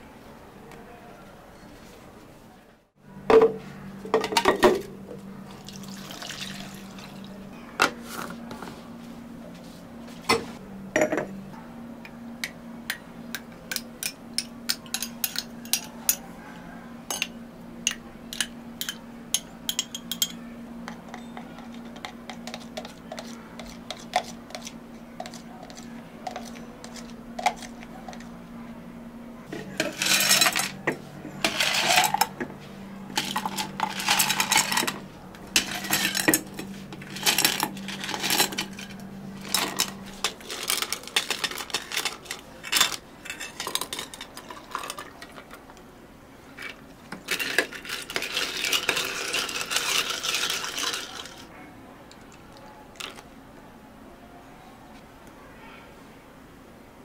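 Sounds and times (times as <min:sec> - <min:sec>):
low equipment hum: 0:00.0 - 0:57.0
cups and utensils clinking: 0:05.6 - 0:07.2, 0:11.0 - 0:11.3, 0:13.3 - 0:16.2, 0:17.1 - 0:28.2, 0:29.5 - 0:32.5, 0:33.1 - 0:45.4, 0:46.6 - 0:51.5
liquid pouring: 0:05.6 - 0:07.2.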